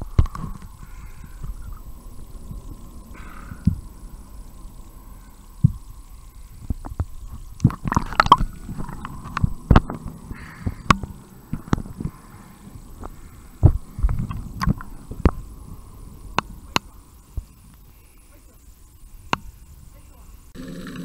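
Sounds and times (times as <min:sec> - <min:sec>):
faint steady hum: 0:00.0 - 0:21.0
underwater thumps and knocks: 0:06.7 - 0:12.2, 0:13.6 - 0:15.4.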